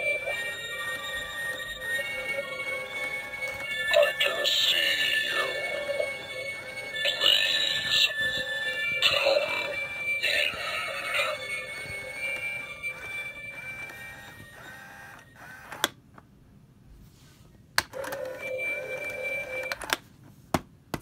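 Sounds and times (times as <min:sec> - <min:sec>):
spooky electronic sound effect: 0:00.0 - 0:14.4.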